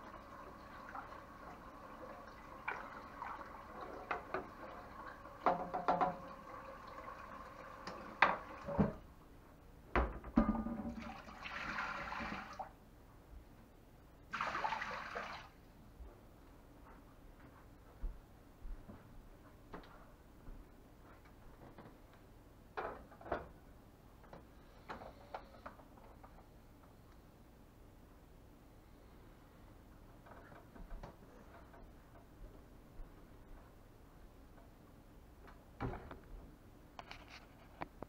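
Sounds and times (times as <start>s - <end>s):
sharp knocks and clatters: 5.4s - 6.3s, 9.9s - 11.0s.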